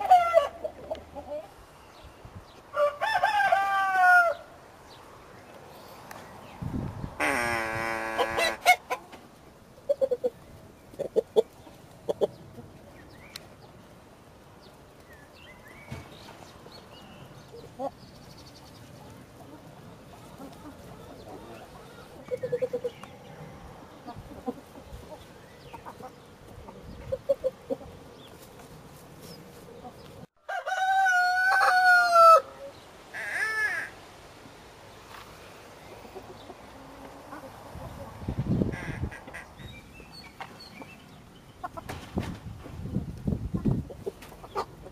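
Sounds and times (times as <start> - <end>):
chickens clucking softly: 0.0 - 1.8, 7.2 - 13.7, 15.9 - 30.3, 35.7 - 39.6, 40.3 - 44.9
rooster crowing: 2.7 - 4.5, 30.4 - 33.9.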